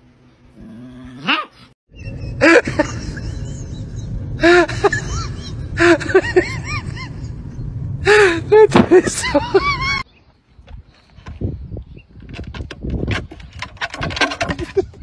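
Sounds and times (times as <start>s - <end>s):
steady low rumble: 2.0s - 10.0s.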